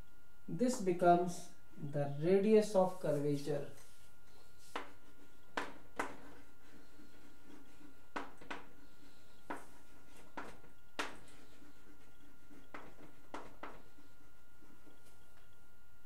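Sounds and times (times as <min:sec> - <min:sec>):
faint steady whine: 0:00.0 - 0:16.0
chalk tapping on blackboard: 0:04.6 - 0:15.2.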